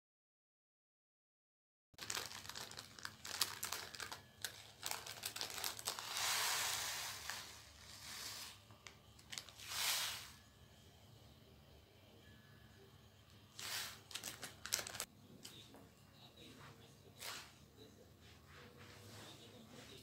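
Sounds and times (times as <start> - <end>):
plastic packet crinkling: 2.0 - 7.6, 9.2 - 9.7, 13.6 - 15.1.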